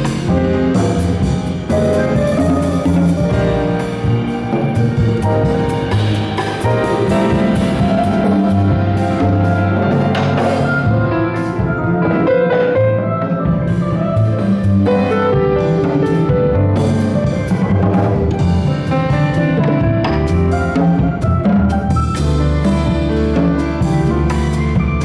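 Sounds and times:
double bass notes: 0:00.0 - 0:25.0
drums and cymbals: 0:00.0 - 0:25.0
piano chords and melody: 0:00.0 - 0:25.0.

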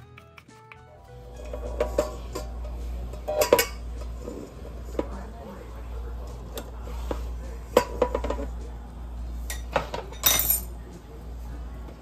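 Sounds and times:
metal bowl and knife clinking: 0:03.3 - 0:04.0, 0:09.5 - 0:10.8.

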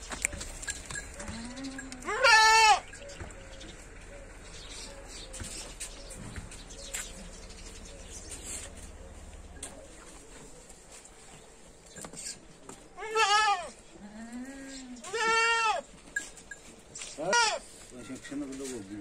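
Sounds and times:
goat bleating: 0:01.2 - 0:02.9, 0:12.9 - 0:16.0, 0:17.1 - 0:18.3.

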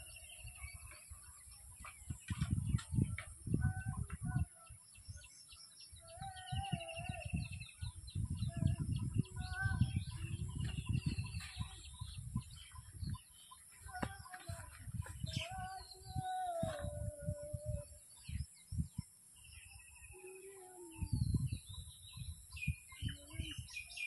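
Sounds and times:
wavering lower bird call: 0:06.0 - 0:10.6, 0:13.9 - 0:18.3, 0:20.0 - 0:21.6
chickens calling: 0:06.0 - 0:17.9.

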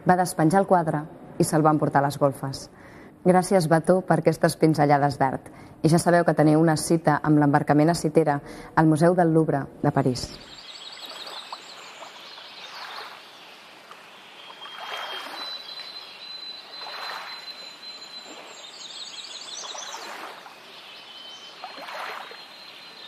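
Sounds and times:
birds chirping and whistling: 0:10.4 - 0:13.6, 0:14.2 - 0:23.0
water washing in swells: 0:10.6 - 0:23.0.

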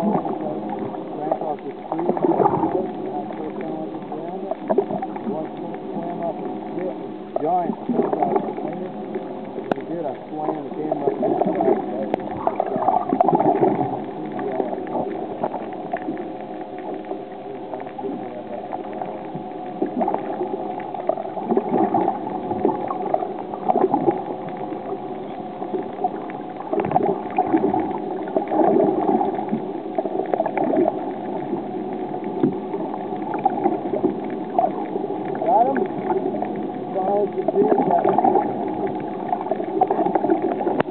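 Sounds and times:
faint steady tone: 0:00.0 - 0:40.9
water gurgling and sloshing: 0:00.0 - 0:40.9.

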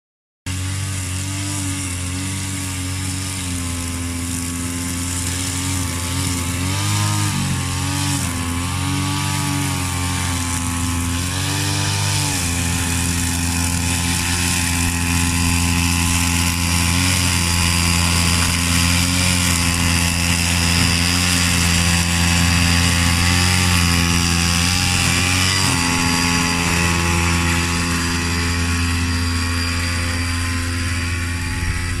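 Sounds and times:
lawn mower engine running fast: 0:00.5 - 0:32.0.

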